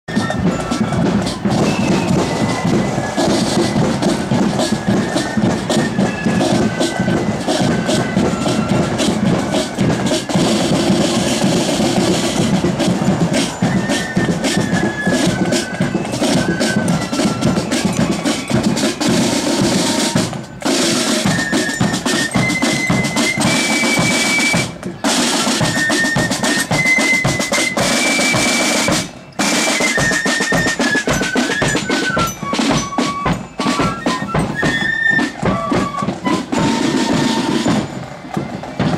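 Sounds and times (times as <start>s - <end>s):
flutes playing high melody: 0.1s - 38.9s
side drums rattling: 0.1s - 38.9s.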